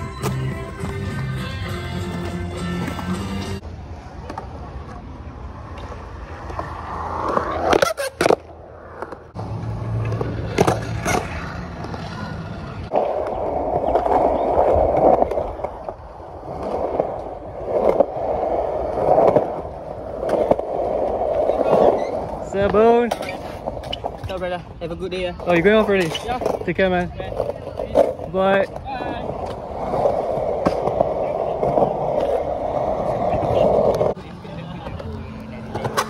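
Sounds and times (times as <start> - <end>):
skateboard wheels rolling on concrete: 0.0 - 36.0
wheels rolling on rough surface: 0.0 - 36.0
skateboard clacking on ground: 9.9 - 24.6, 25.2 - 36.0.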